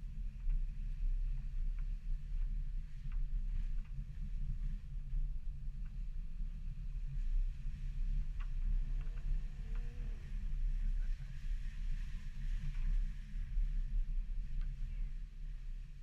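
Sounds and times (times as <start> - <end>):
muffled engine and tyre rumble: 0.0 - 16.0
light ticks: 8.1 - 10.1.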